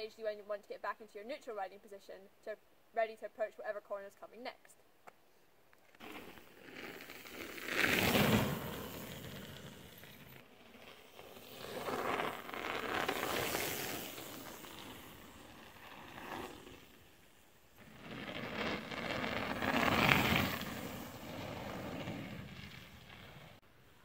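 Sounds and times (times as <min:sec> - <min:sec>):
bike tyres crunching on gravel: 0:05.8 - 0:23.6.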